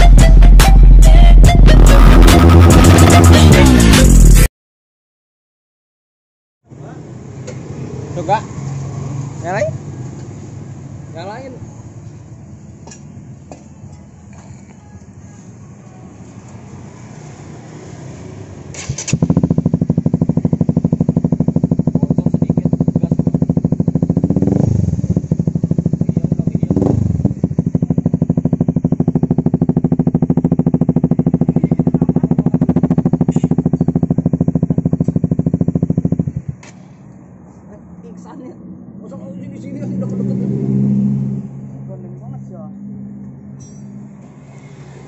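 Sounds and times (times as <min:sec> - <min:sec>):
motorcycle engine revving: 0:01.7 - 0:04.5, 0:16.6 - 0:36.8, 0:38.1 - 0:45.0
motorcycle engine starting: 0:17.1 - 0:36.8
motorcycle engine idling: 0:19.2 - 0:36.6.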